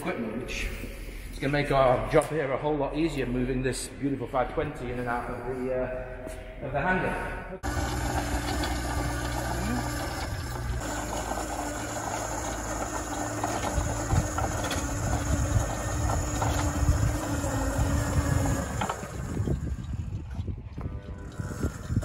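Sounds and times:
electric drive motors humming: 0:07.6 - 0:22.0
wind rumble on microphone: 0:13.7 - 0:22.0.

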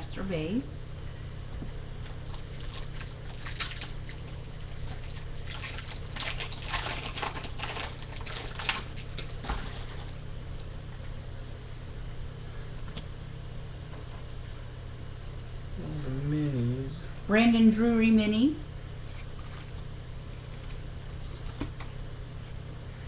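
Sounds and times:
low steady hum: 0:00.0 - 0:23.0
foil wrapper tearing and crinkling: 0:02.1 - 0:10.2.

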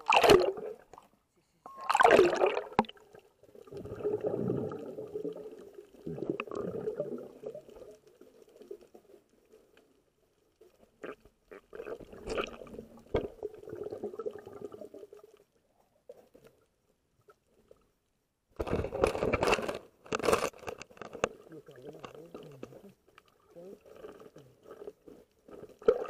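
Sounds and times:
loud water splashing: 0:00.0 - 0:00.6
water gurgling underwater: 0:00.0 - 0:01.0, 0:01.7 - 0:09.2, 0:11.0 - 0:15.4, 0:21.3 - 0:26.0.

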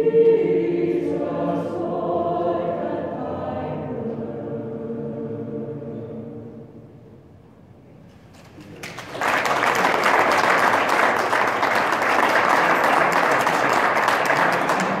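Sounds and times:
audience applause: 0:08.5 - 0:15.0.

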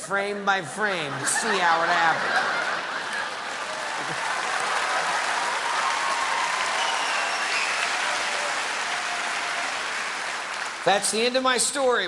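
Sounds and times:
audience laughing: 0:00.6 - 0:05.8
audience applauding: 0:02.3 - 0:11.6.

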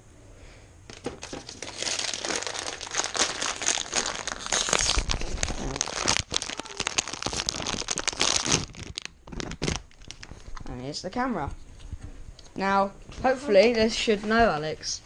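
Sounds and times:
plastic packaging crinkling: 0:00.9 - 0:10.6.

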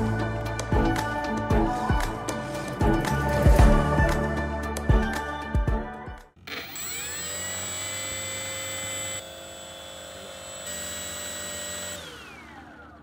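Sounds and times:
electric motor propeller whine: 0:06.4 - 0:13.0.

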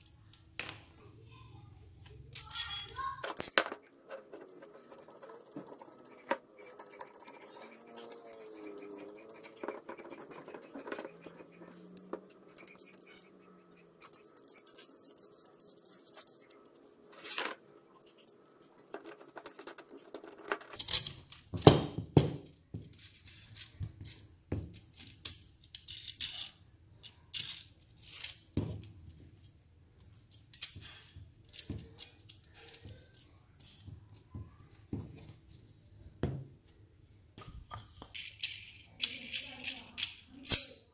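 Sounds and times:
steel hardware clicking and clinking: 0:02.3 - 0:03.8, 0:22.8 - 0:34.2, 0:38.0 - 0:40.9.

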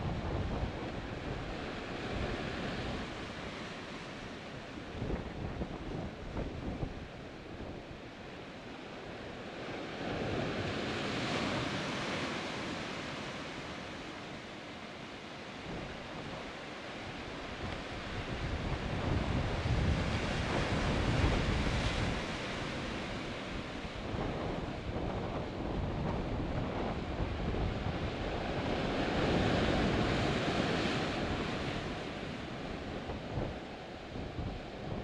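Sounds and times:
wind buffeting microphone: 0:00.0 - 0:08.3, 0:15.5 - 0:35.0
surf washing over rocks: 0:00.0 - 0:35.0.

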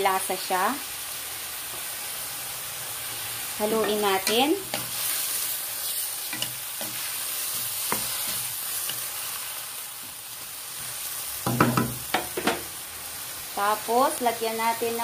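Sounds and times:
food sizzling in a wok: 0:00.0 - 0:15.0
spatula scraping and knocking pan: 0:06.2 - 0:09.1.

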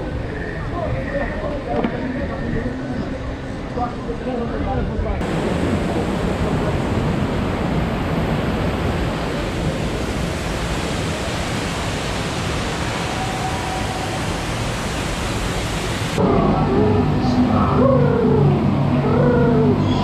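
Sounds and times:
waterfall rushing: 0:05.2 - 0:17.7.

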